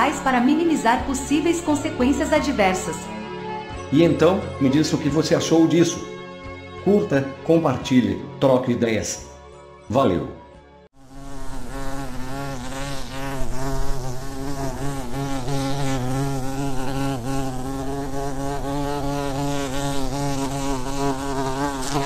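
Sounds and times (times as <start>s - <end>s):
bee buzzing: 0.0s - 3.7s, 11.0s - 22.0s.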